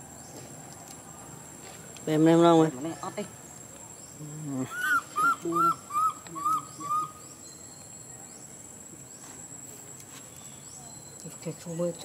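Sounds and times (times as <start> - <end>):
monkey high coo calls: 4.3 - 7.4.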